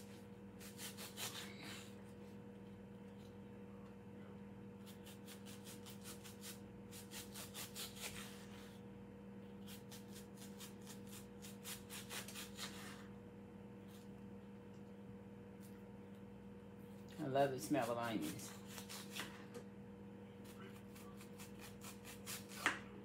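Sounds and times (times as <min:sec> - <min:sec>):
knife slicing an onion: 0:00.0 - 0:02.0, 0:04.8 - 0:08.8, 0:09.6 - 0:13.1, 0:17.6 - 0:19.5, 0:20.4 - 0:22.9
faint steady hum: 0:00.0 - 0:23.0.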